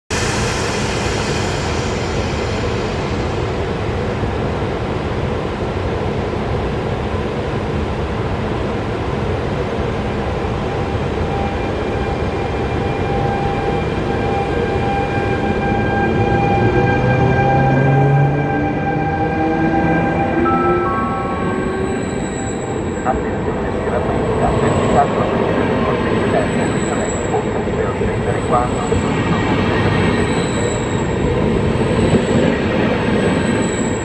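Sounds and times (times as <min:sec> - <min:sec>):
train rumbling on track: 0:00.1 - 0:34.0
locomotive whining tones: 0:10.7 - 0:34.0.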